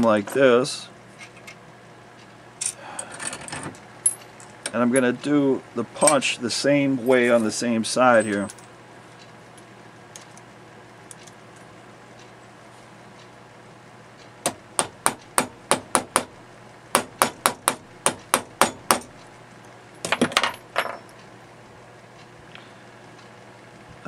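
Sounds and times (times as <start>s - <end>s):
hammer tapping metal punch: 14.4s - 16.3s, 16.9s - 19.1s.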